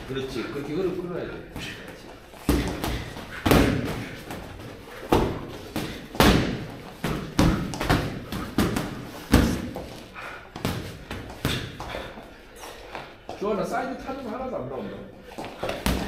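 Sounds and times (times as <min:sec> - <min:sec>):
footwork on ring canvas: 0:00.0 - 0:14.4, 0:15.2 - 0:16.0
gloved punches thudding: 0:02.4 - 0:04.5, 0:05.1 - 0:09.9, 0:15.6 - 0:16.0.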